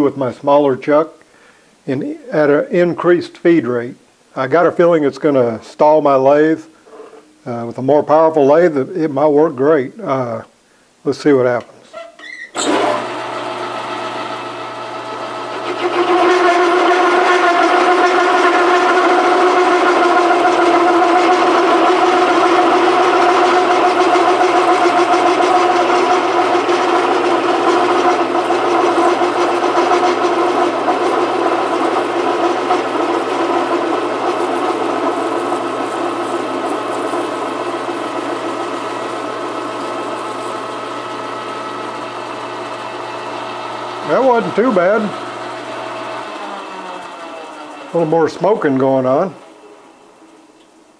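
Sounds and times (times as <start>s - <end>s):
motor hum: 12.3s - 50.4s.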